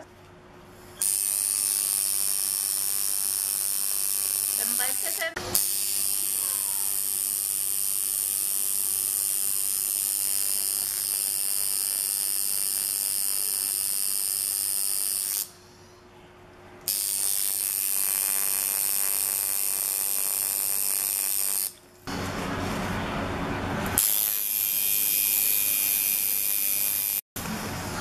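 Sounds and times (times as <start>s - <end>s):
tattoo machine buzzing: 1.0s - 15.5s, 16.8s - 21.8s, 24.0s - 27.2s.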